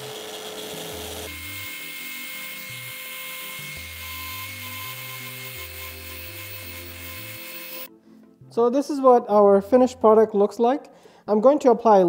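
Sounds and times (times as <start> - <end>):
orbital sander whining: 0.0 - 7.9.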